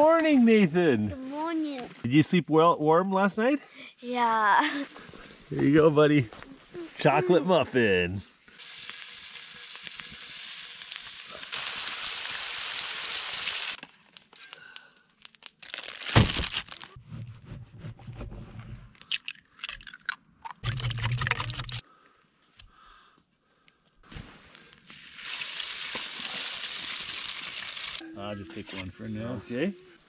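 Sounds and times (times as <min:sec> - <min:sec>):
bacon sizzling in a skillet: 0:08.6 - 0:13.8, 0:24.8 - 0:28.0.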